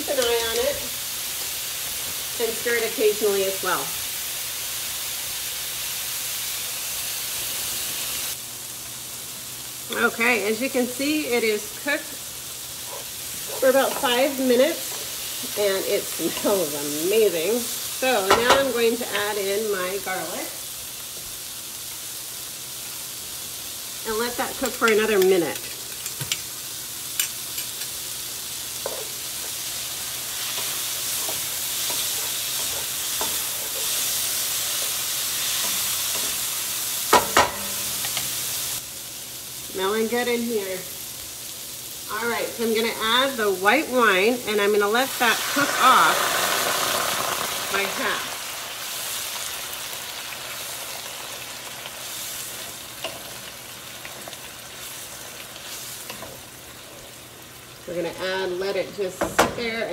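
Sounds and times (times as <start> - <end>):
vegetables sizzling in oil: 0.0 - 59.9.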